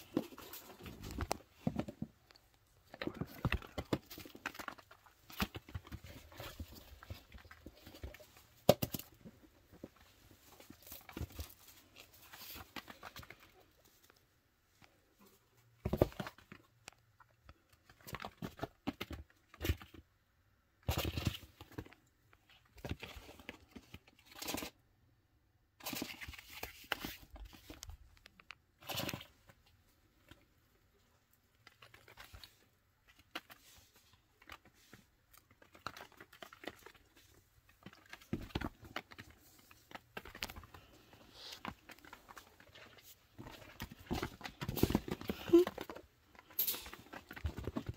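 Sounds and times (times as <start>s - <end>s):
small animals scampering on cloth: 28.8s - 47.9s.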